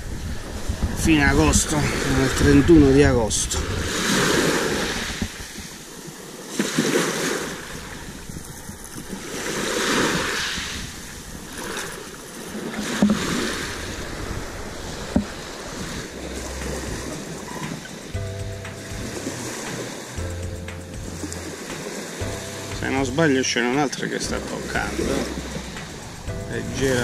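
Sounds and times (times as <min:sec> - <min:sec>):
waves washing over pebbles: 0:00.0 - 0:27.0.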